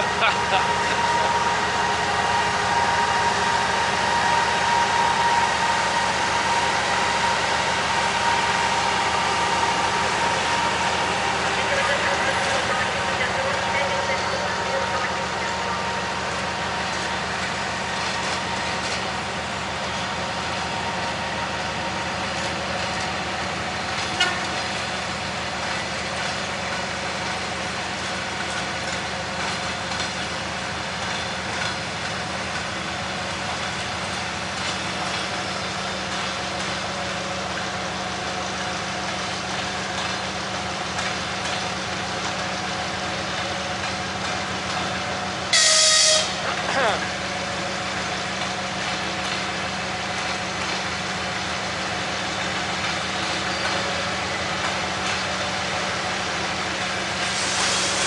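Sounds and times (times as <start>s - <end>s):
locomotive engine humming: 0.0s - 58.0s.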